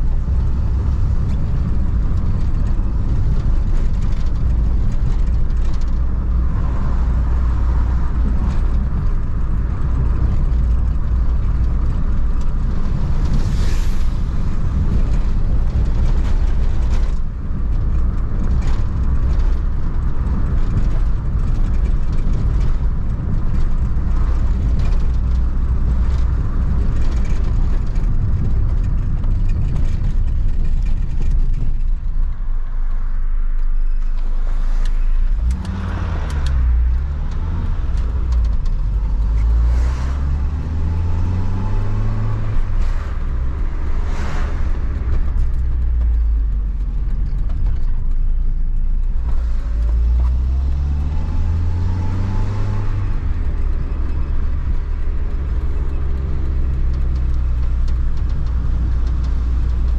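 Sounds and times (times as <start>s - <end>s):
van engine and road noise: 0.0s - 59.9s
knocks and rattles: 14.3s - 33.0s, 34.0s - 59.9s.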